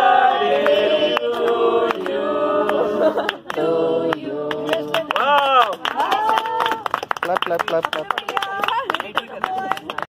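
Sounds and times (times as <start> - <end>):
group singing birthday song: 0.0 - 5.3
hand claps: 0.6 - 10.0.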